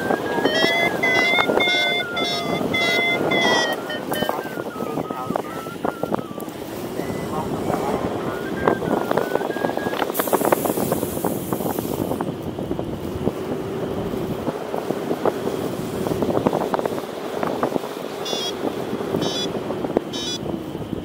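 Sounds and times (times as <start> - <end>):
variometer high beeps: 0.0 - 10.1, 18.2 - 18.6, 19.2 - 19.5, 20.1 - 20.4
wind buffeting microphone: 0.0 - 21.0.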